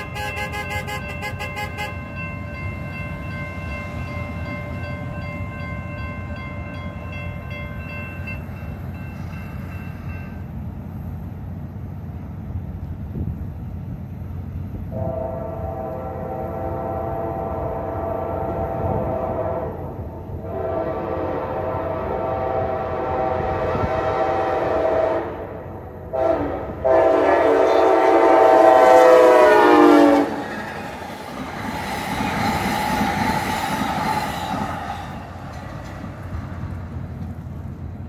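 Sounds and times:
locomotive horn blasts: 0.0 - 2.3, 14.9 - 30.4
train passing: 0.0 - 38.0.

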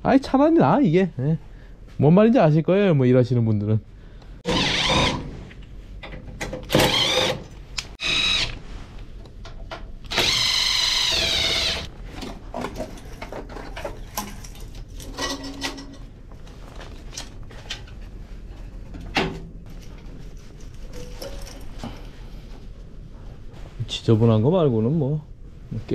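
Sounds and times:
power driver whining: 4.4 - 5.2, 6.6 - 8.6, 10.0 - 11.9.

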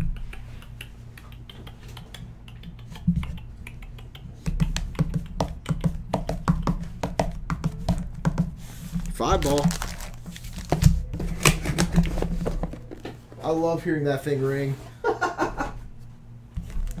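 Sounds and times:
fingers tapping on foil packs: 4.0 - 13.1.

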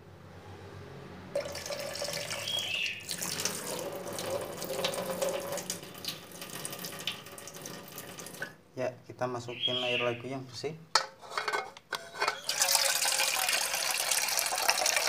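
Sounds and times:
water running into metal pot: 1.4 - 8.5, 12.2 - 15.0.

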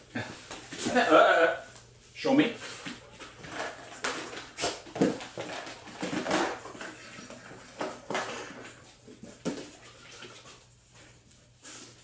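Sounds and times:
plastic containers knocking and clattering: 3.2 - 9.8.

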